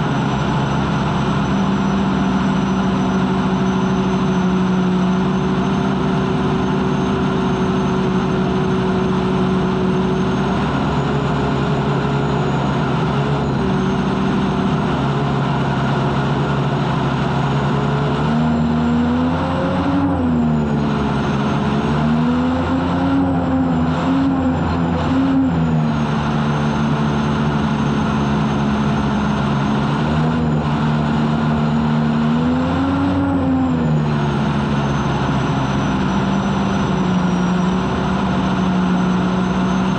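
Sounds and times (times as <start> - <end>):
turbine engine whining: 0.0 - 39.9.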